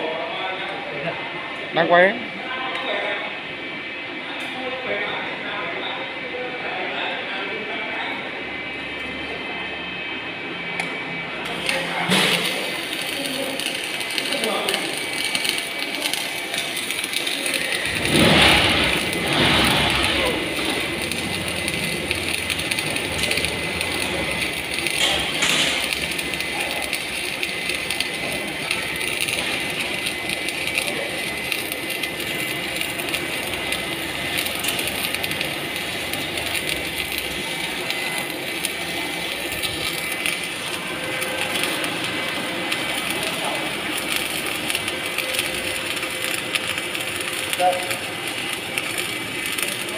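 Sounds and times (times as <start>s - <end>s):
welding arc crackling hiss: 10.7s - 49.9s.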